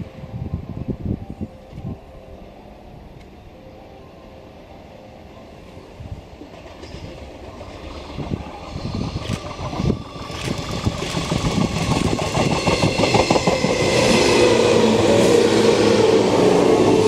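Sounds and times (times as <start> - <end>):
train passing: 0.0 - 17.0
wheels clicking over rail joints: 6.4 - 13.9
train motor whine: 8.0 - 17.0.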